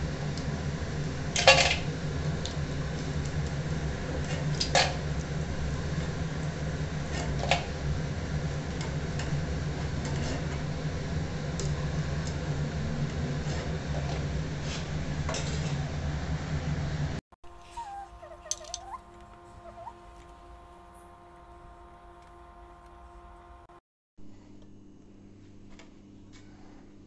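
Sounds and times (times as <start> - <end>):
low hum: 16.0 - 27.0.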